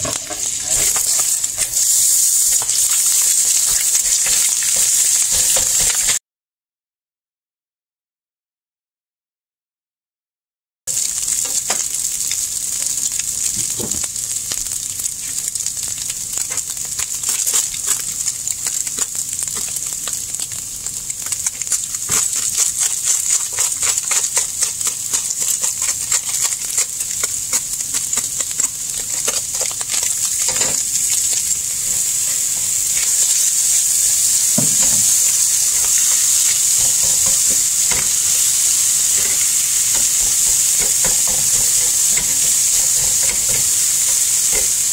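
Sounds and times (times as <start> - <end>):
food sizzling in a frying pan: 0.0 - 6.2, 10.9 - 44.9
wooden spatula scraping and tapping: 35.8 - 44.8.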